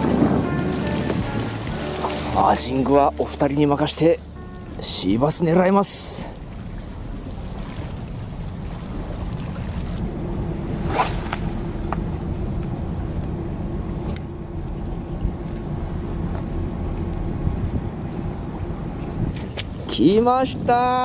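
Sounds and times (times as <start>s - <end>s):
wind and water rumble: 0.0s - 21.0s
sharp swish: 10.7s - 11.9s.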